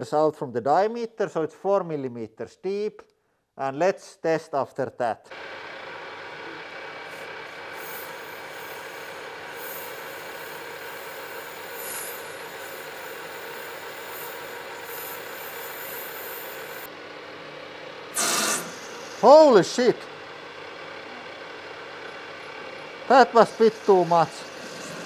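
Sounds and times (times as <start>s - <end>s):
harsh tool chatter burst: 5.3s - 16.9s, 18.1s - 20.2s, 23.0s - 25.0s
lathe machine hum: 5.3s - 25.0s.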